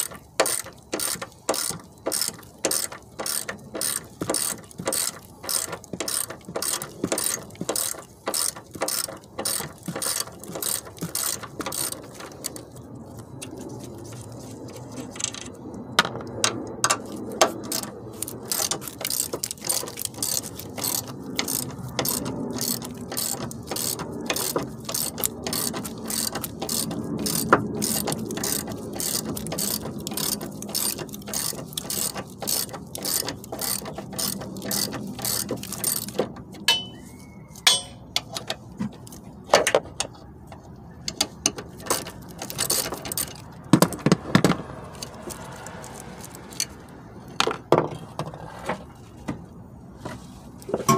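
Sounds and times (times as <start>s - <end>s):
ratchet wrench clicking: 0.0s - 12.8s, 16.8s - 37.0s, 41.1s - 43.5s
sharp metal clinks: 36.7s - 38.1s.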